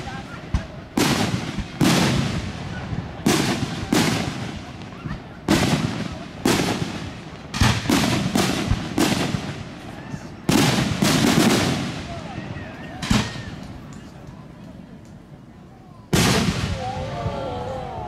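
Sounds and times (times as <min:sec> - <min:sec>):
firework shells booming: 0:00.0 - 0:09.8, 0:10.4 - 0:13.9, 0:16.1 - 0:16.9.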